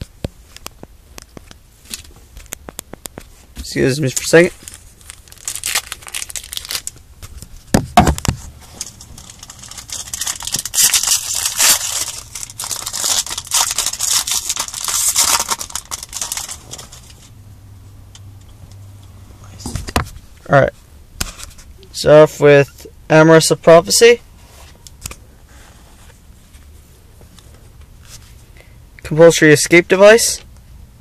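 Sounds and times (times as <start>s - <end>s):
foil wrapper crinkling: 4.0s - 17.3s.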